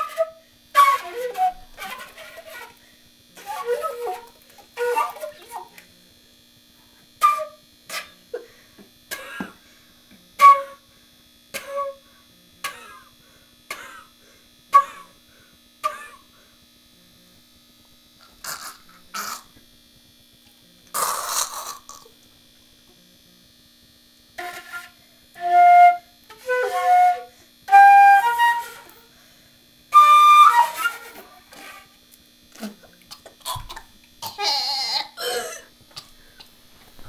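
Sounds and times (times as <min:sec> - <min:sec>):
breathy flute puffs: 0:00.0 - 0:05.7, 0:24.4 - 0:31.9.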